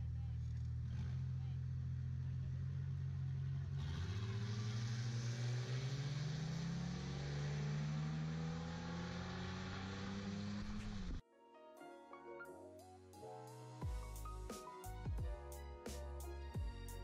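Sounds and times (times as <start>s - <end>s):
car engines accelerating hard: 0.0s - 11.2s.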